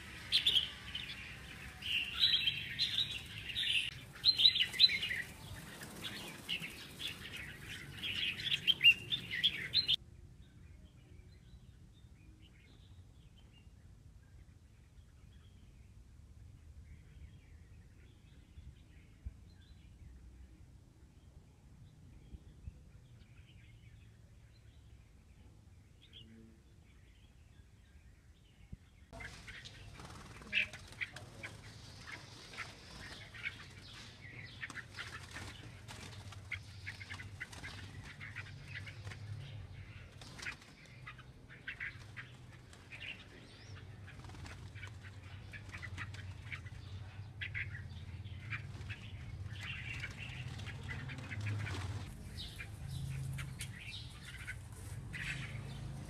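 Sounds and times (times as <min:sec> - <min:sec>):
birds flapping wings: 0:00.0 - 0:10.0, 0:29.2 - 0:47.8, 0:48.4 - 0:56.0.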